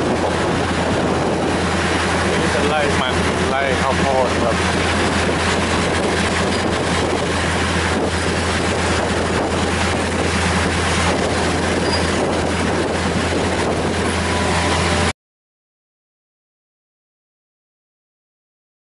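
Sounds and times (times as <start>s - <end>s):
train running on track: 0.0s - 15.1s.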